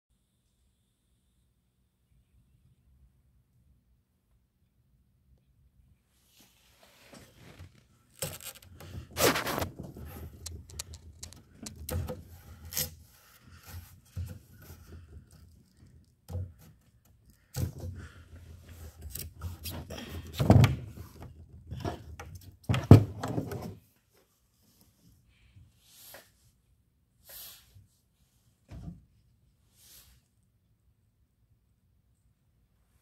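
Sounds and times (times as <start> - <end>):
rustling: 6.2 - 12.1.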